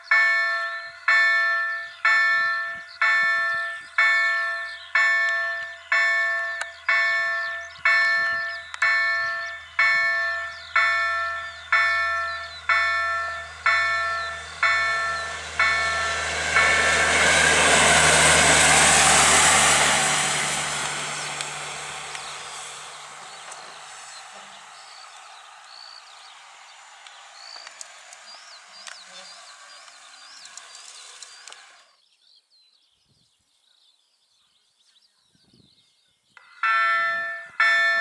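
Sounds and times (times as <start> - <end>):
level-crossing warning bell: 0.0 - 20.7, 36.4 - 38.0
rail vehicle engine hum: 0.0 - 32.1, 36.4 - 38.0
vehicle passing with wheel noise: 4.7 - 32.0.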